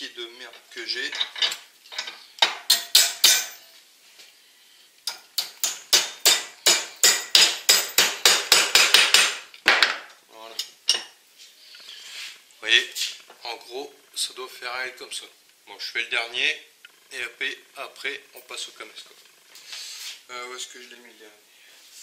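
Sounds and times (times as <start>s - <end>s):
hammer striking steel rod: 2.4s - 3.6s, 5.1s - 9.4s.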